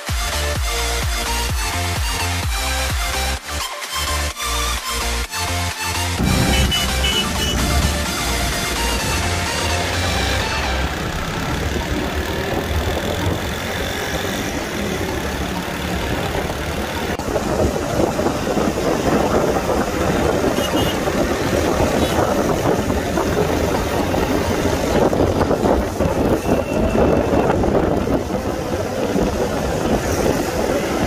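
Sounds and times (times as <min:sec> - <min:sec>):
vehicle engine running: 0:06.1 - 0:26.5.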